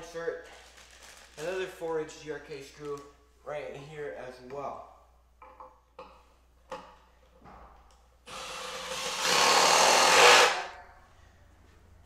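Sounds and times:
cordless drill driving screw: 8.3 - 10.6.

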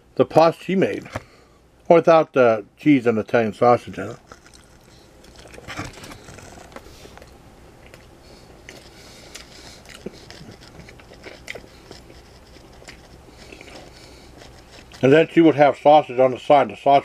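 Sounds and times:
person chewing food: 4.2 - 15.2.

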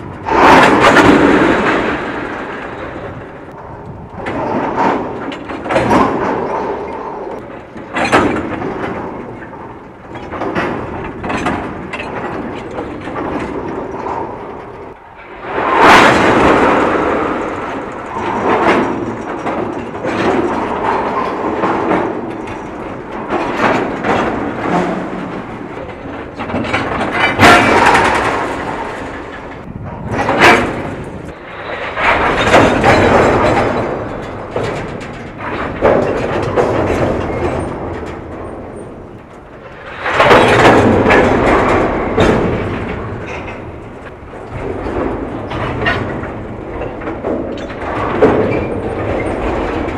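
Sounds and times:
steel wheels rumbling on rails: 0.0 - 49.9.

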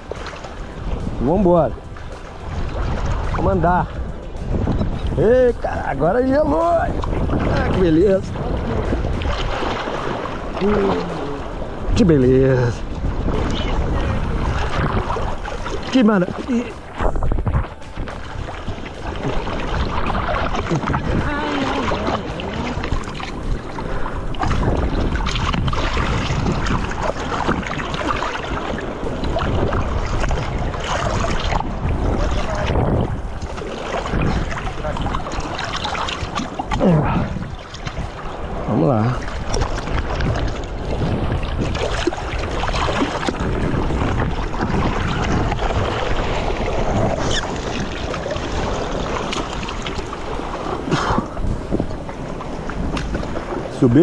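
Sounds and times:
water splashing against hull: 0.0 - 54.0
wind on microphone: 0.0 - 54.0.

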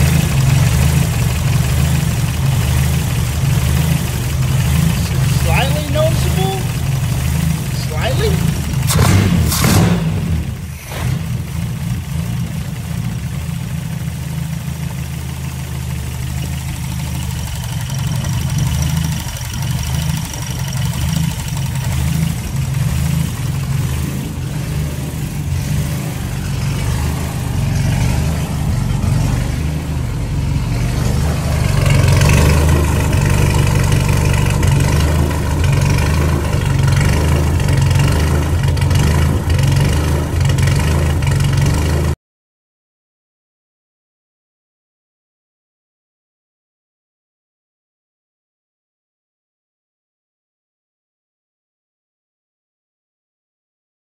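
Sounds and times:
car engine idling: 0.0 - 42.2
clicking in engine: 8.7 - 10.0.

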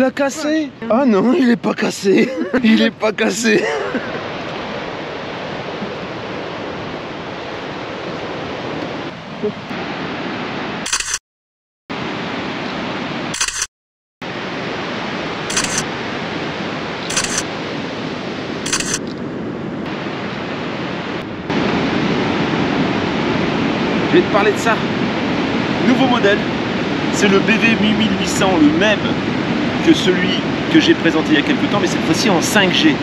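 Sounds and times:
ocean surf: 0.0 - 11.2, 11.9 - 13.6, 14.2 - 33.0
wind on microphone: 3.6 - 10.8
camera shutter clicks: 10.9 - 11.2, 13.4 - 13.7, 15.5 - 15.8, 17.1 - 17.4, 18.7 - 19.2.

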